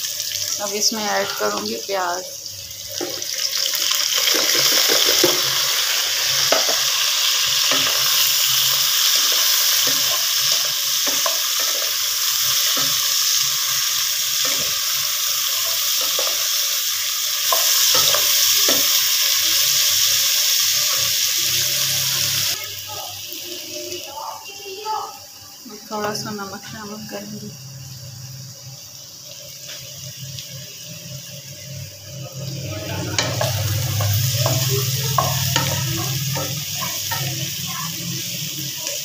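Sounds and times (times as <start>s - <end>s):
vegetables sizzling in oil: 0.0s - 39.0s
wooden spatula scraping pan: 0.8s - 1.8s.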